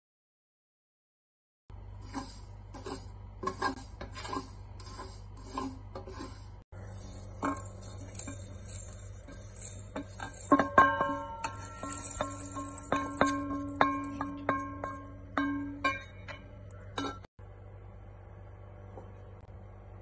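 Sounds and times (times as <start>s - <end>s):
steady low hum: 1.7s - 20.0s
wooden spatula scraping spices in pan: 2.0s - 10.7s
steel pan clinking against jar: 7.0s - 17.3s.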